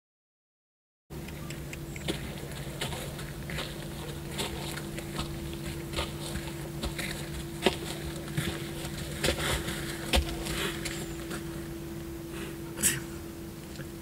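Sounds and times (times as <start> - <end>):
steady low hum: 1.1 - 14.0
hooves on gravel: 1.4 - 11.8
footsteps on gravel: 2.0 - 11.8.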